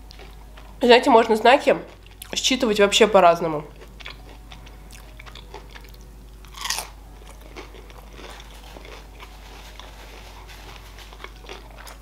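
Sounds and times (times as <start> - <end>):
crunchy chewing: 3.7 - 12.0.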